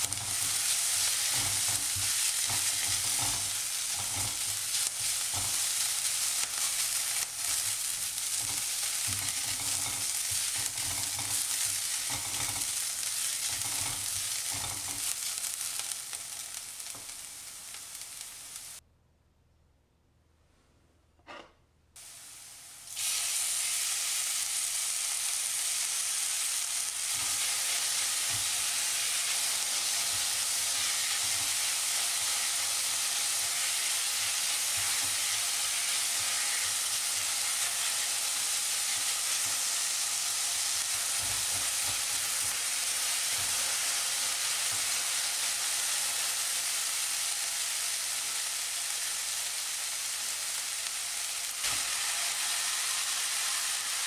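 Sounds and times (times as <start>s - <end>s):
food sizzling in a wok: 0.0s - 18.8s, 22.0s - 54.0s
spatula knocking a pan: 0.1s - 5.7s, 8.3s - 12.8s.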